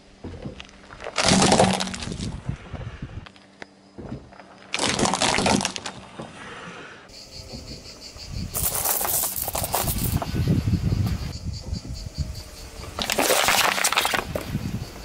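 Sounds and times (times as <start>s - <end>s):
toy buses crunching under tyre: 0.6s - 2.6s, 8.6s - 10.3s, 13.0s - 14.6s
metal coins clinking and scraping: 8.5s - 10.3s.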